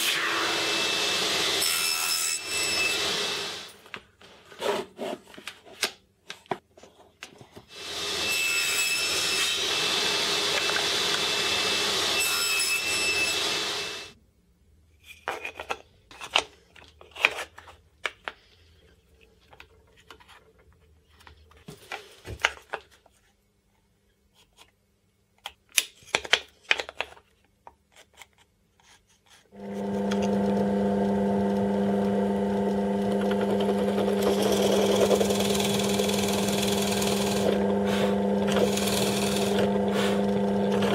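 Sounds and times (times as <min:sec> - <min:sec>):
table saw cutting wood: 0:00.0 - 0:03.8, 0:07.7 - 0:14.2, 0:29.6 - 0:40.9
drill press boring wood: 0:09.0 - 0:12.2, 0:29.6 - 0:40.9.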